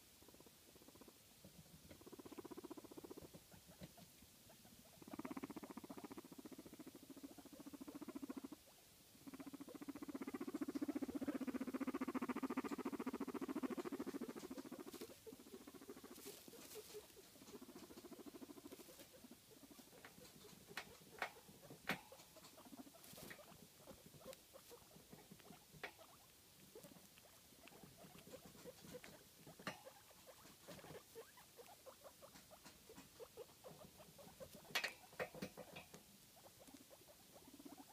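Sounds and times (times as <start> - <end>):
guinea pig low rumble: 0.0 - 37.9
rustling in hay: 14.9 - 17.2.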